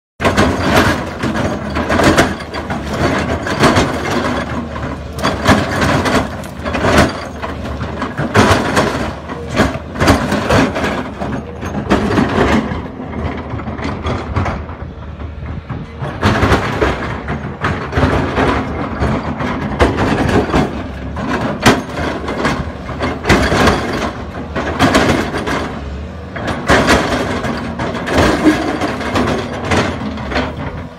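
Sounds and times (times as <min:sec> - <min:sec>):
excavator diesel engine under load: 0:00.2 - 0:30.9.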